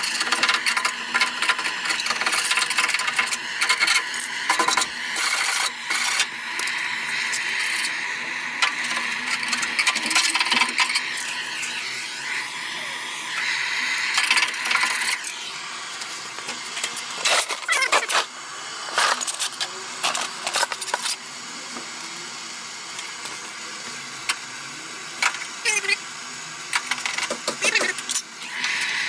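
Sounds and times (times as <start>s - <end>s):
gas blowtorch hissing: 0.0s - 25.6s, 26.8s - 29.0s.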